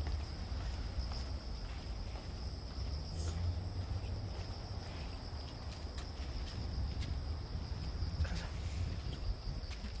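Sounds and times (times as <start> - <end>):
low rumble on microphone: 6.4 - 10.0.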